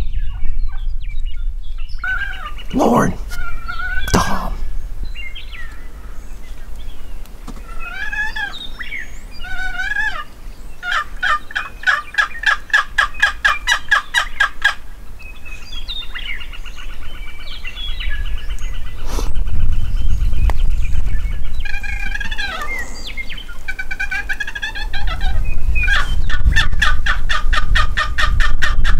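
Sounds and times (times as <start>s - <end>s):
wind rumble on microphone: 0.0s - 9.8s, 15.5s - 28.9s
wild turkeys gobbling: 9.4s - 10.2s, 10.8s - 14.8s, 21.6s - 28.8s.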